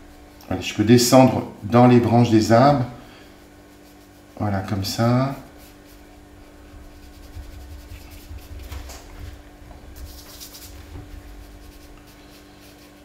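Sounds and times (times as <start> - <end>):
low hum: 1.6 - 12.9
brush strokes on paper: 3.1 - 13.0
brush swishes: 3.4 - 13.0.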